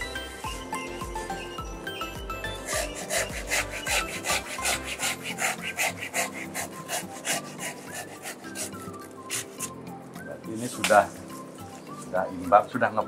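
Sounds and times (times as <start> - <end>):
faint background music: 0.0 - 13.0
hand saw cutting branch: 2.4 - 9.8, 10.6 - 11.4.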